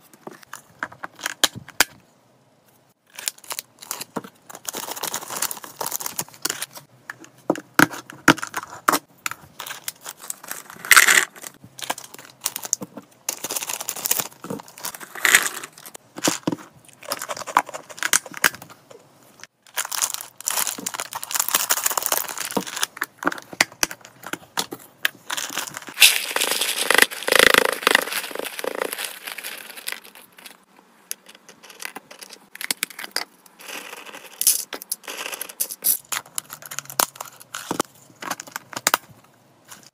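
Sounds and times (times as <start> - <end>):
plastic bag crinkling: 19.7 - 23.0, 25.2 - 30.6.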